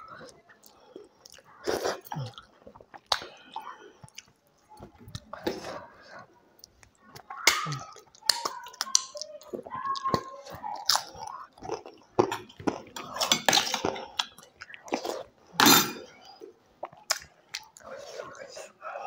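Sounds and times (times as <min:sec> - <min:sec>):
wet chewing: 0:00.0 - 0:19.0
crisp food crunching: 0:06.6 - 0:15.6.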